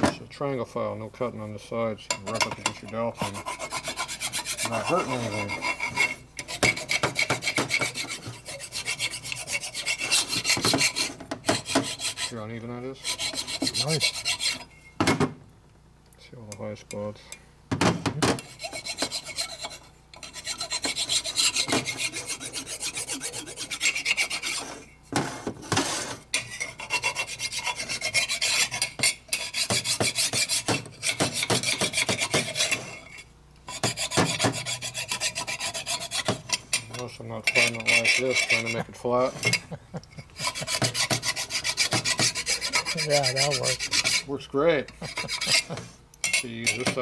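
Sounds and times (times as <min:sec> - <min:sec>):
hand file rasping on metal: 0:02.2 - 0:14.7, 0:18.4 - 0:47.0.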